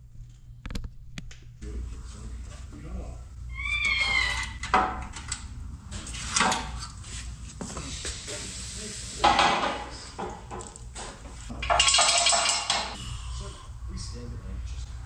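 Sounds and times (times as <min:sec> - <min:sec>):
steel parts clanking on concrete: 0:11.5 - 0:13.0.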